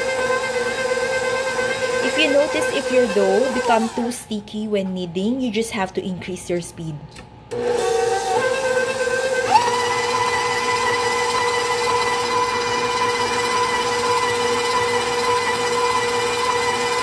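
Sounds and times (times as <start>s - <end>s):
stand mixer motor whining: 0.0s - 4.1s, 7.5s - 17.0s.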